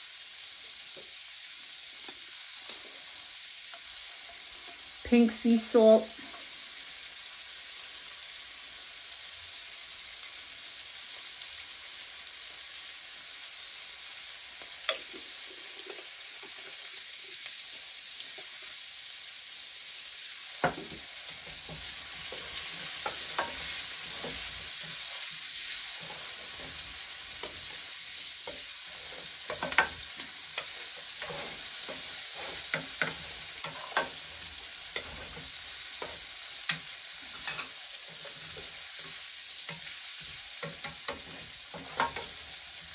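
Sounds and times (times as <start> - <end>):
vegetables sizzling in oil: 0.0 - 42.9
spoon scraping a pan: 3.7 - 5.0, 14.7 - 17.4, 20.6 - 42.9.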